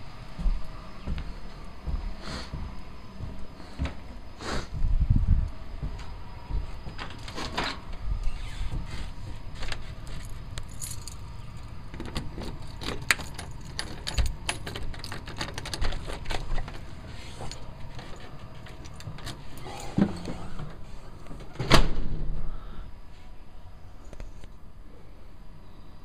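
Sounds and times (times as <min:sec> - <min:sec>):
keys jangling: 0:10.0 - 0:20.0
door lock clicks and rattles: 0:11.9 - 0:16.8.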